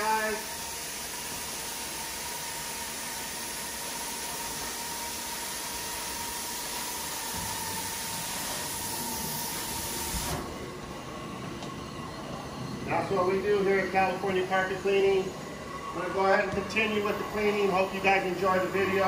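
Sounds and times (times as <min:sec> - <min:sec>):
suction air and water hissing: 0:00.4 - 0:10.5
steady whine: 0:05.6 - 0:19.0.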